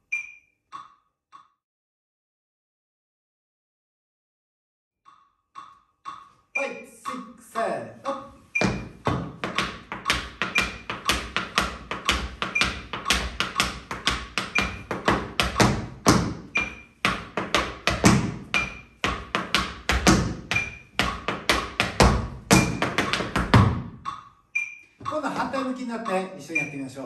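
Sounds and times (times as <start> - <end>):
metronome beep: 0.0 - 0.6, 5.6 - 19.0, 20.0 - 27.0
tap shoes on wooden floor: 8.2 - 24.2.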